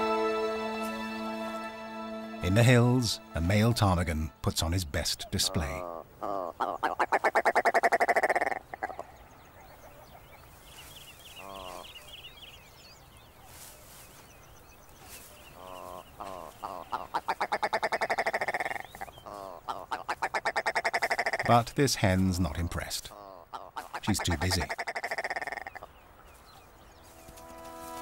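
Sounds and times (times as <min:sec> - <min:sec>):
ptarmigan rattling call: 0:16.6 - 0:21.8, 0:22.6 - 0:25.8.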